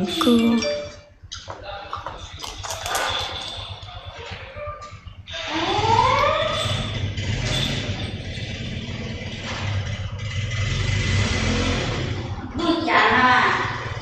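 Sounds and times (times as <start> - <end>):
engine revving: 5.3 - 14.0.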